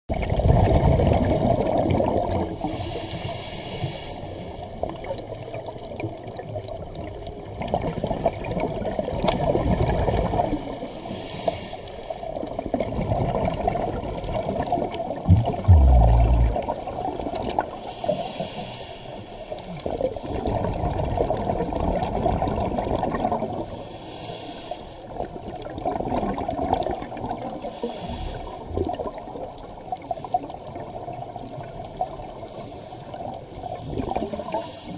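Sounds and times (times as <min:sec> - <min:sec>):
exhaled bubbles rushing: 0:00.1 - 0:02.6, 0:12.7 - 0:17.7
regulator hissing inhales: 0:02.6 - 0:04.6, 0:11.1 - 0:12.2, 0:17.8 - 0:19.6, 0:23.8 - 0:25.1, 0:27.6 - 0:28.7, 0:34.5 - 0:34.9
low thump: 0:15.3 - 0:16.6.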